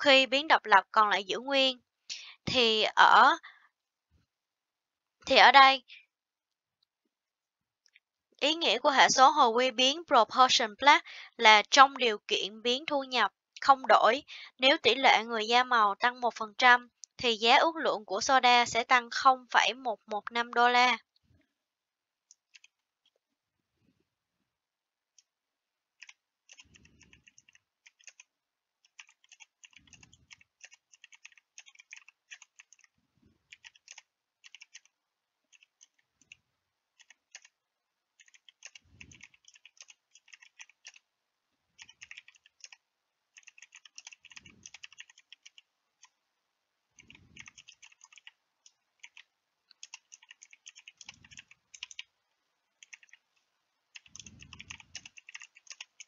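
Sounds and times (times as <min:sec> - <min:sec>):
keyboard typing: 0:22.3 - 0:23.2, 0:26.0 - 0:36.4, 0:37.0 - 0:37.6, 0:38.2 - 0:41.1, 0:41.8 - 0:46.2, 0:47.0 - 0:52.1, 0:52.8 - 0:53.3, 0:53.9 - 0:56.0.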